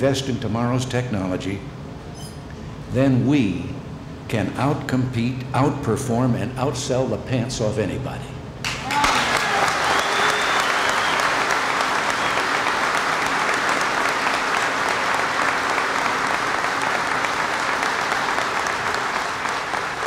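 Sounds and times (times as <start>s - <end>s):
audience applauding: 8.6s - 20.0s.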